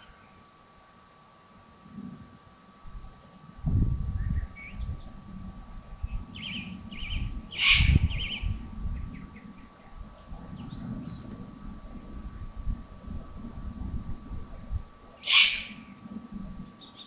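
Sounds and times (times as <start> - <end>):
birds chirping trills: 0.0 - 2.2, 3.0 - 13.4, 14.6 - 17.0
low rumble: 2.9 - 15.2
bird hissing call: 6.4 - 8.5, 15.2 - 16.0.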